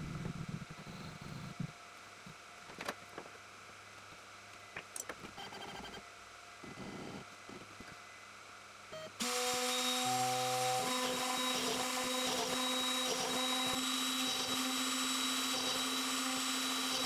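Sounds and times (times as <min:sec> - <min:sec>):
router spindle humming: 0:09.2 - 0:17.0.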